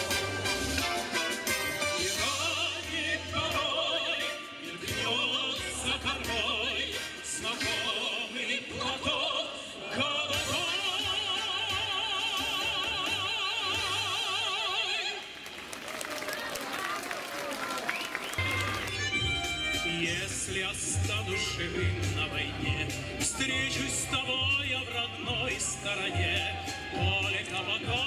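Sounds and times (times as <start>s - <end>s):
bass accompaniment: 0.0s - 9.2s, 18.4s - 28.0s
person singing with vibrato: 0.0s - 15.4s, 19.1s - 28.0s.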